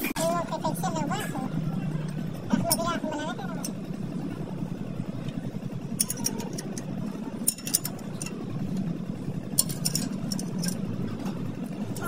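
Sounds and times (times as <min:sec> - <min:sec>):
low engine hum: 0:00.0 - 0:12.0
spanner metal clicks and clinks: 0:05.9 - 0:11.0.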